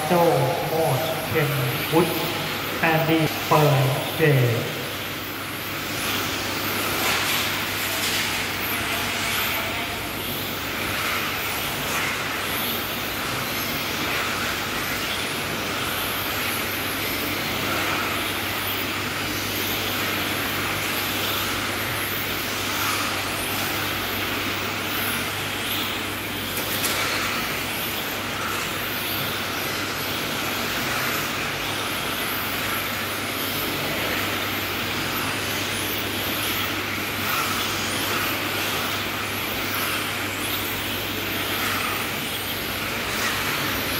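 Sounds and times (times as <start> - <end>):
steady low hum: 0.0 - 7.8
high-pitched whine of electric motors: 0.0 - 43.9.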